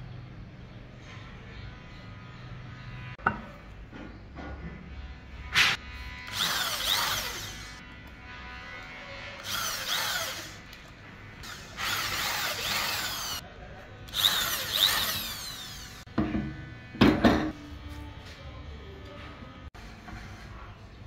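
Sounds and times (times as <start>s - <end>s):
electric drill running: 5.9s - 13.4s, 14.1s - 16.1s.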